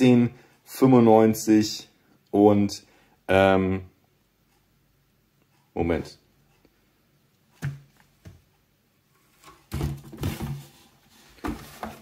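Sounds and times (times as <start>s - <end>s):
paper rustling and knocks: 9.2s - 12.0s.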